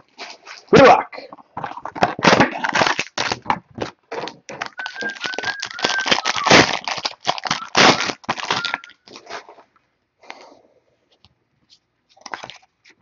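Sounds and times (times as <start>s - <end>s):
plastic wrap crinkling and tearing: 1.7s - 9.5s, 12.2s - 13.0s.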